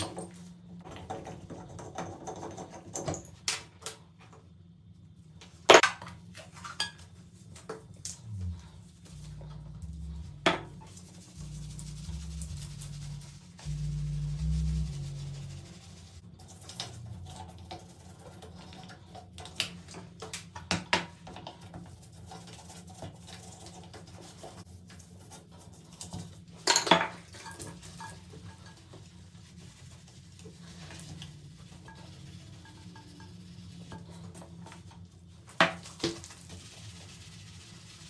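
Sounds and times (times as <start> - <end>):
toothbrush scrubbing metal: 8.2 - 19.9, 21.3 - 26.5, 27.3 - 38.0.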